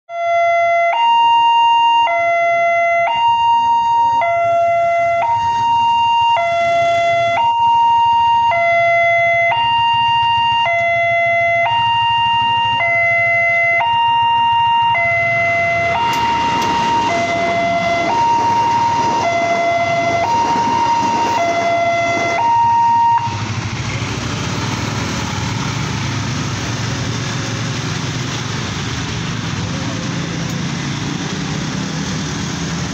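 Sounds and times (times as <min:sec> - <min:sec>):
level crossing alarm two-tone ding-dong: 0:06.0 - 0:23.4
train passing rumble: 0:14.3 - 0:32.9.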